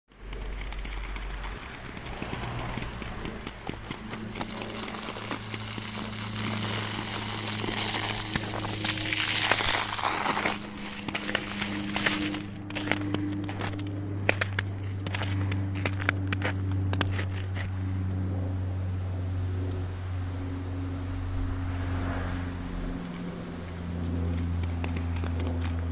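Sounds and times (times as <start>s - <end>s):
low steady hum: 0.2s - 25.9s
footsteps crunching in snow: 1.3s - 18.0s.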